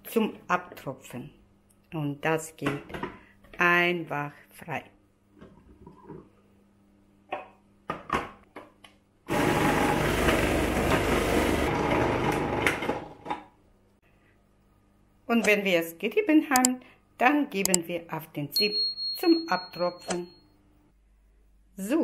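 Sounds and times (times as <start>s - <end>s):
food processor motor grating: 9.3s - 13.2s.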